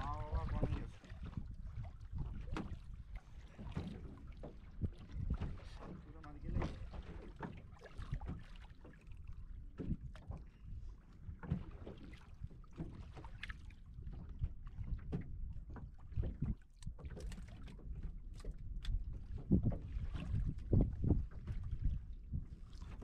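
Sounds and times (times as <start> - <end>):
water lapping against wooden boat: 0.0 - 23.0
wind rumbling on microphone: 0.0 - 23.0.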